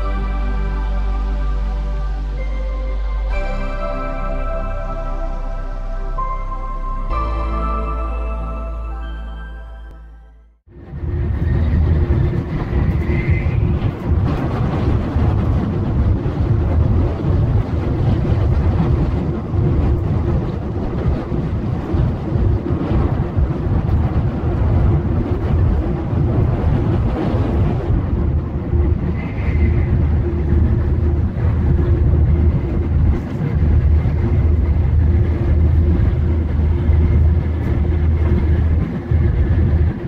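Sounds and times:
train carriage low rumble: 0:10.7 - 0:40.0.

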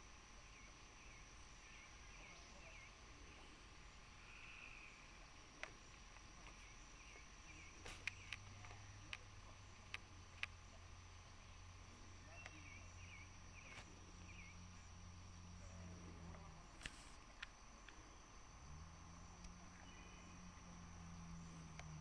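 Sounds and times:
sharp clicks: 0:07.7 - 0:10.6, 0:16.3 - 0:18.0.

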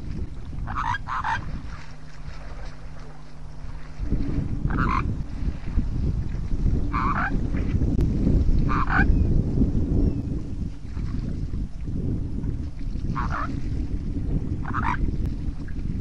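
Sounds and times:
wind rumbling on microphone: 0:00.0 - 0:16.0
animal croaking calls: 0:00.6 - 0:01.5, 0:04.7 - 0:05.1, 0:06.9 - 0:07.6, 0:08.6 - 0:09.1, 0:13.2 - 0:13.6, 0:14.6 - 0:15.0.

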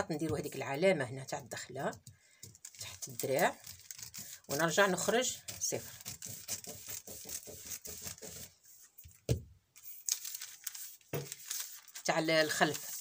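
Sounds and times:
paper rustling: 0:02.5 - 0:09.2, 0:09.8 - 0:13.0.

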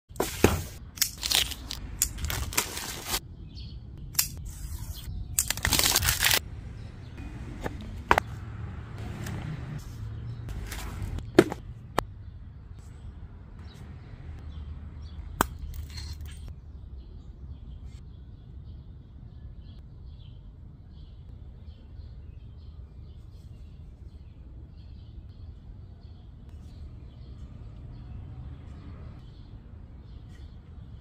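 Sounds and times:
cardboard scraping rustle: 0:00.2 - 0:01.4, 0:10.5 - 0:11.6.

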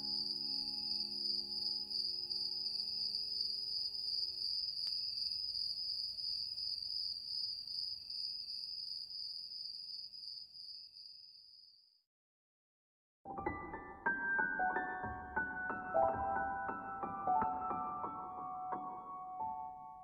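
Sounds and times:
crickets chirping: 0:00.0 - 0:12.0.

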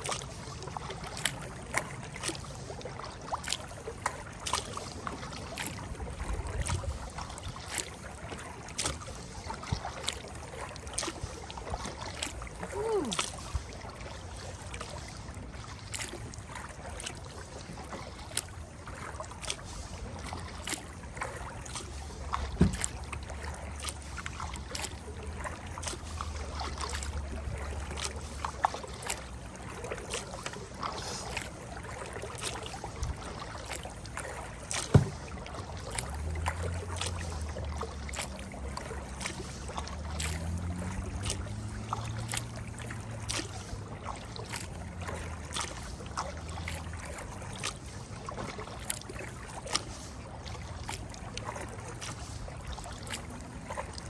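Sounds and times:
running water: 0:00.0 - 0:54.0
paddle clicks and knocks: 0:20.4 - 0:26.0, 0:31.2 - 0:45.8.

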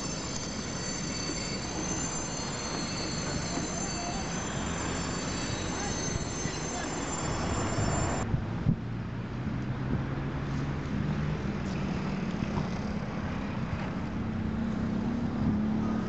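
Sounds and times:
train wheel squeal: 0:00.0 - 0:08.3
diesel locomotive engine drone: 0:00.0 - 0:16.0.

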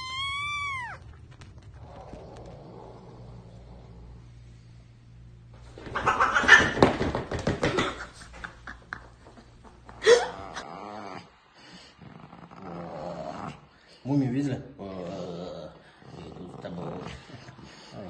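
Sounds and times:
cats hissing and screeching: 0:00.0 - 0:03.0, 0:05.7 - 0:07.0.

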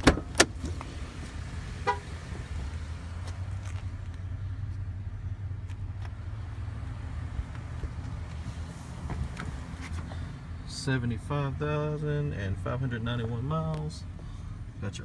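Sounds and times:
truck door clicking open: 0:00.0 - 0:00.8.

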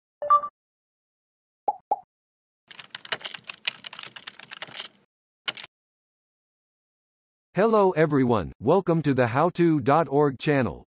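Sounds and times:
keyboard typing: 0:02.7 - 0:05.7.

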